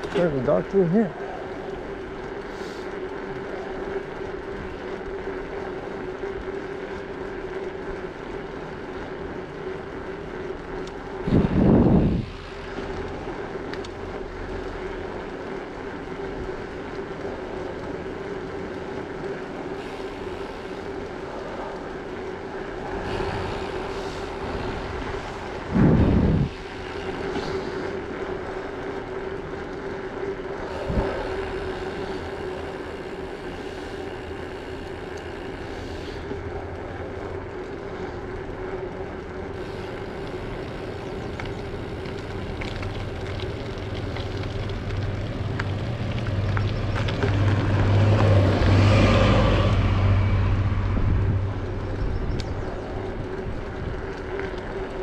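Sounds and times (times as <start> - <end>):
tyre noise on asphalt: 0.0 - 55.0
steady hum: 1.1 - 46.3
heavy wind buffets: 10.8 - 14.8, 16.2 - 55.0
wind rushing over microphone: 11.2 - 12.6, 22.8 - 27.6, 30.7 - 31.8, 45.0 - 55.0.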